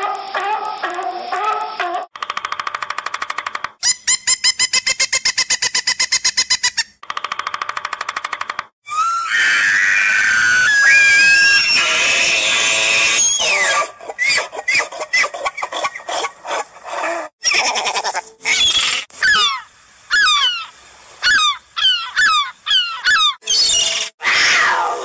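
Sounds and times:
gull yelping call: 0:18.5 - 0:23.5.

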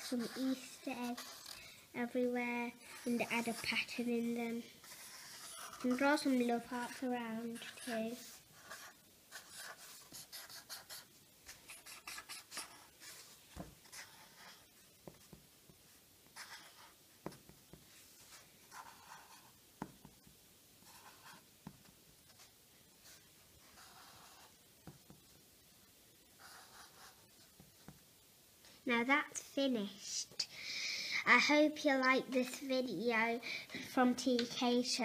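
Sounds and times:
marker scratching on paper: 0:00.0 - 0:15.4, 0:16.3 - 0:25.2, 0:26.4 - 0:28.0
marker taps: 0:15.0 - 0:15.8, 0:17.2 - 0:17.8, 0:19.8 - 0:20.3, 0:24.8 - 0:25.3.

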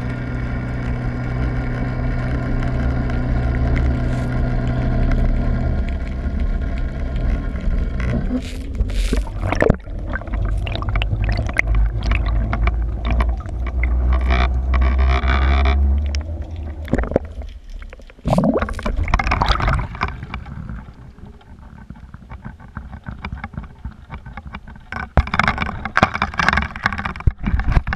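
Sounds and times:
deep rumble: 0:00.0 - 0:27.9
water rushing and gurgling: 0:00.0 - 0:27.9
water splashing: 0:05.7 - 0:27.9.

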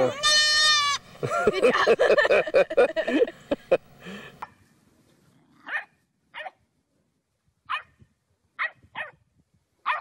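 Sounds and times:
dog barking: 0:05.6 - 0:06.6, 0:07.7 - 0:07.9, 0:08.6 - 0:09.2.

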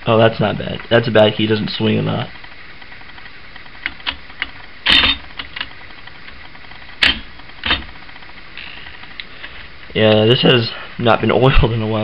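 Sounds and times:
typewriter clicking and clacking: 0:03.8 - 0:05.7, 0:07.0 - 0:07.9.

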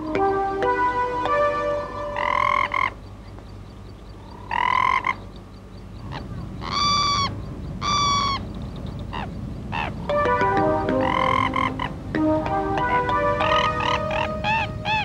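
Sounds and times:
animal calling: 0:02.2 - 0:03.0, 0:06.0 - 0:08.5, 0:10.9 - 0:12.1.

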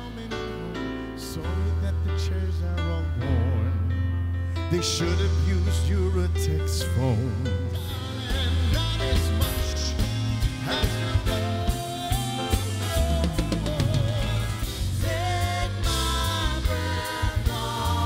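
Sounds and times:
man singing: 0:00.0 - 0:18.0
live band playing: 0:04.6 - 0:18.0.

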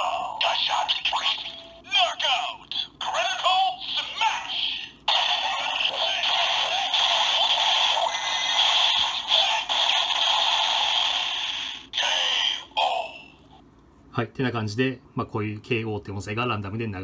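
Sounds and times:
toy speaker sound effect barrage: 0:00.4 - 0:02.3, 0:03.0 - 0:13.2.

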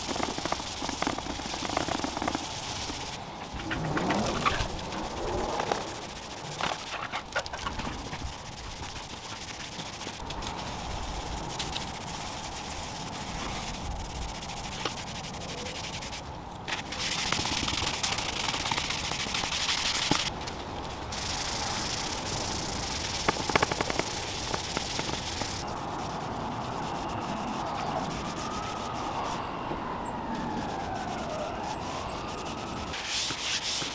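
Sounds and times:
cloth rag rubbing wood: 0:00.0 - 0:16.2, 0:30.6 - 0:33.9.

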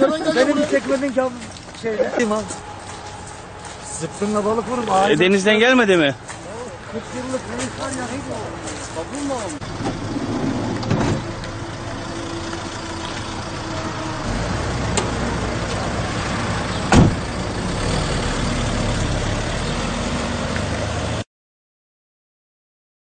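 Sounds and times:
street traffic: 0:00.0 - 0:21.2
van engine idling: 0:01.8 - 0:19.8
van door slamming: 0:09.7 - 0:11.3, 0:16.7 - 0:17.4.

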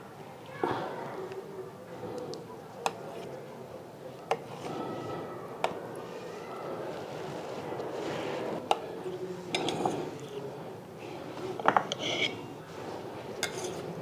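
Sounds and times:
knife scraping metal plate: 0:11.9 - 0:12.5, 0:13.4 - 0:13.9.

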